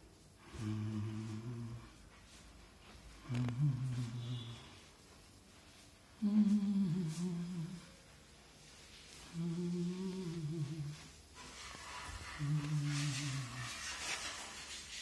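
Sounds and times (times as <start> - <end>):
person humming a slow tune: 0.4 - 2.0, 3.2 - 4.9, 6.2 - 8.0, 9.2 - 11.2, 12.4 - 13.7.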